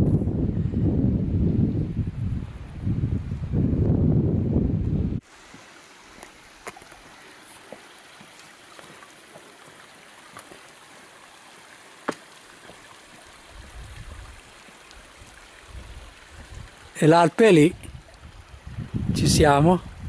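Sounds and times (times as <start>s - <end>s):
wind buffeting microphone: 0.0s - 5.2s, 13.4s - 16.9s, 17.6s - 20.0s
mountain stream rushing: 5.2s - 20.0s.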